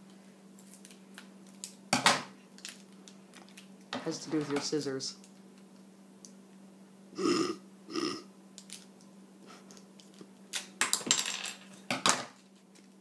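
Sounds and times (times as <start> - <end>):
faint steady hum: 0.0 - 13.0
person burping: 7.2 - 8.3.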